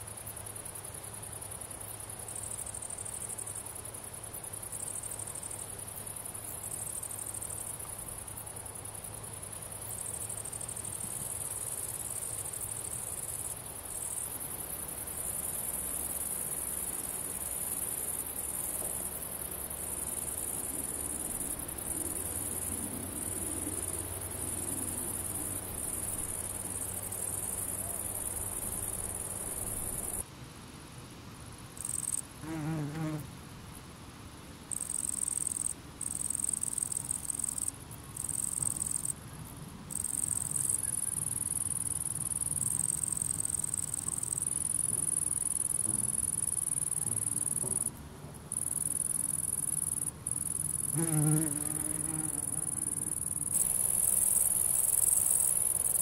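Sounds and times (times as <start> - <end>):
grasshoppers stridulating: 1.5 - 30.2, 48.5 - 56.0.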